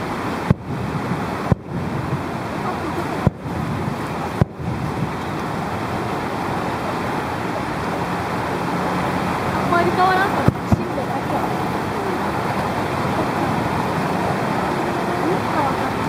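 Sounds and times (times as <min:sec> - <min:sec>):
steady rushing background noise: 0:00.0 - 0:16.0.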